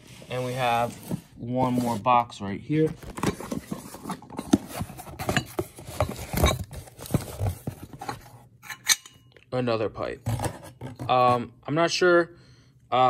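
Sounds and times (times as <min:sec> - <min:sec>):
cardboard box rustling and crinkling: 0:02.7 - 0:08.4.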